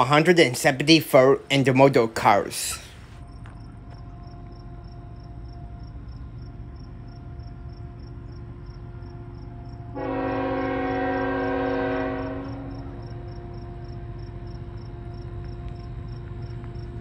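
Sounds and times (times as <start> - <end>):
crickets chirping: 0.8 - 17.0
locomotive horn blast: 9.4 - 13.9.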